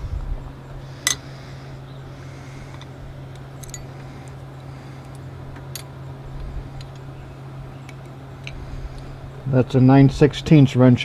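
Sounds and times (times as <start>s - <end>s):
steady low hum: 0.0s - 11.0s
metal wrenches clinking: 3.6s - 3.9s.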